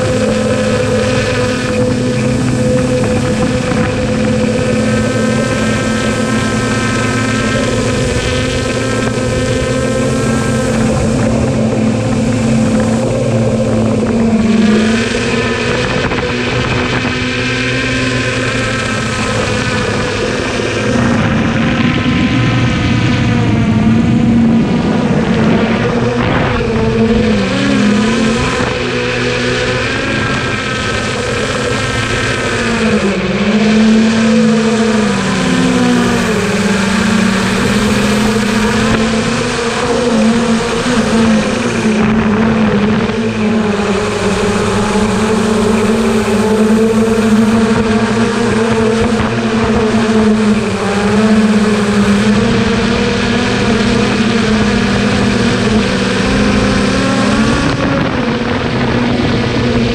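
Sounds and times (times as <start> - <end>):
drone propellers whining: 0.0 - 59.9.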